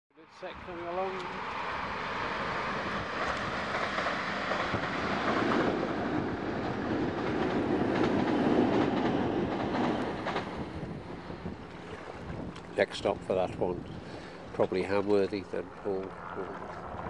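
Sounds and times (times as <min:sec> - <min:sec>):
train wheels rumbling on rail: 0:01.2 - 0:11.6.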